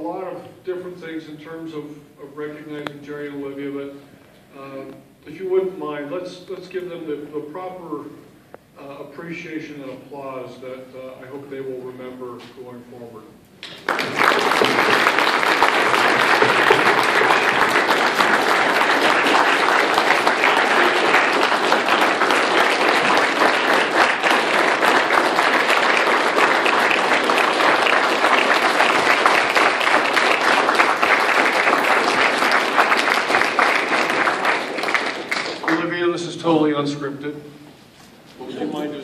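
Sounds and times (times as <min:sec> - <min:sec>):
audience applause: 0:13.6 - 0:35.9.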